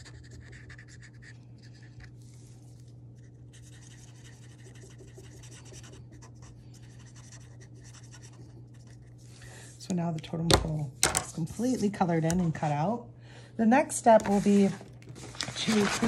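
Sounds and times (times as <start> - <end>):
steady low hum: 0.0 - 16.0
marker scribbling on paper: 3.5 - 9.0.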